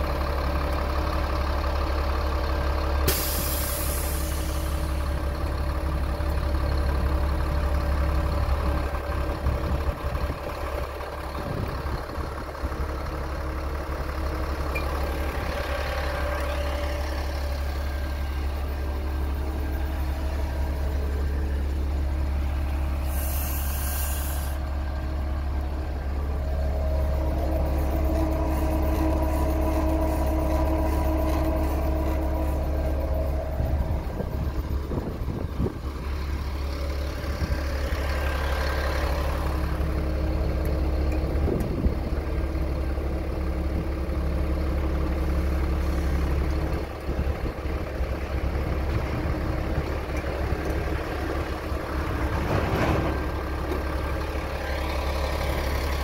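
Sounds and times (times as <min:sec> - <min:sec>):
truck engine idling: 0:00.0 - 0:56.0
short high hiss: 0:23.0 - 0:24.6.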